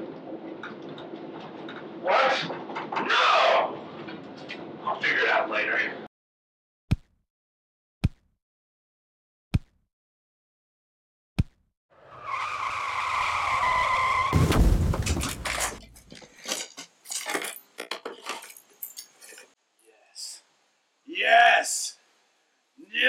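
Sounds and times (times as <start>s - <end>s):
car tyres squealing: 12.0s - 14.4s
car crashing into cabinet: 14.2s - 15.9s
wood pieces cracking and clattering: 14.4s - 19.3s.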